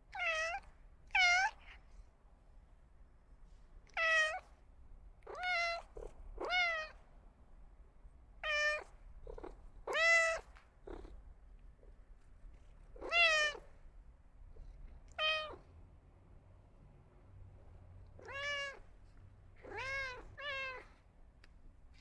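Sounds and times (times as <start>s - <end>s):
cat meowing: 0.1s - 1.7s, 3.9s - 4.4s, 5.3s - 7.0s, 8.4s - 8.9s, 9.8s - 10.6s, 13.0s - 13.7s, 15.1s - 15.7s, 18.2s - 18.9s, 19.6s - 21.0s.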